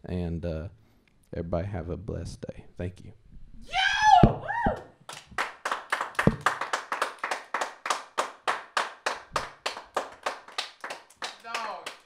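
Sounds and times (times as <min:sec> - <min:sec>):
hands clapping in applause: 0:05.1 - 0:12.0.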